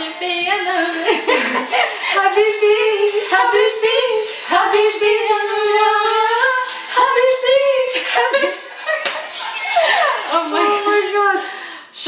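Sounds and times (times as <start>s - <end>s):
woman singing unaccompanied: 0.0s - 8.5s, 10.2s - 12.0s
woman breathing: 11.4s - 11.9s.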